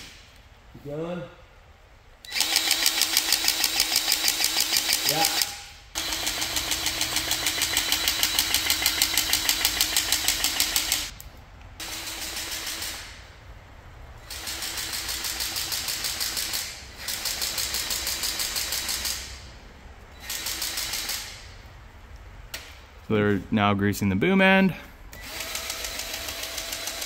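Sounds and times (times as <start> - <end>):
grease gun motor buzzing: 2.3 - 5.4, 6.0 - 11.1, 25.2 - 27.0.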